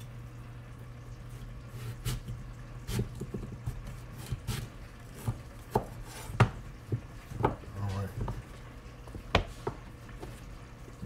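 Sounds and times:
knife knocking on cutting board: 5.2s - 8.4s, 9.1s - 9.8s.

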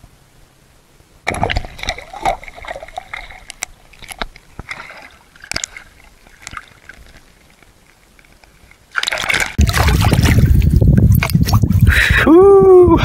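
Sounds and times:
splash: 1.2s - 7.4s, 8.9s - 11.8s
water sloshing underwater: 1.2s - 11.9s
underwater clicks and crackles: 1.3s - 11.9s.

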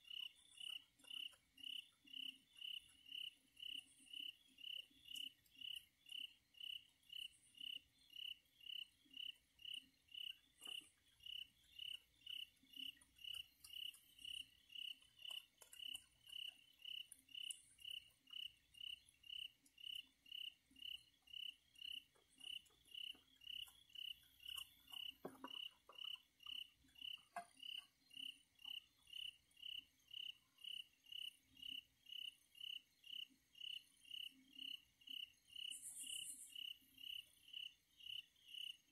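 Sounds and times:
cricket chirping: 0.0s - 38.9s
faint clicks: 12.8s - 18.0s.

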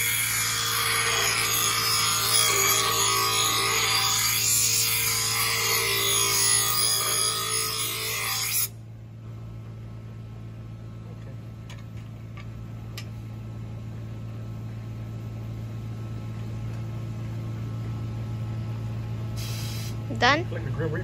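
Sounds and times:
grinder motor humming: 0.0s - 8.7s
steel blade grinding on wheel: 0.0s - 8.7s.

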